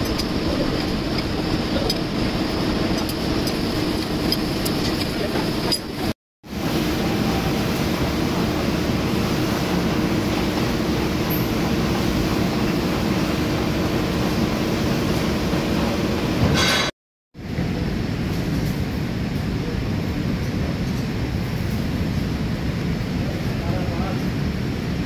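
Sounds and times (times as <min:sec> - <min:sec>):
milling machine boring steel: 0:00.0 - 0:06.1.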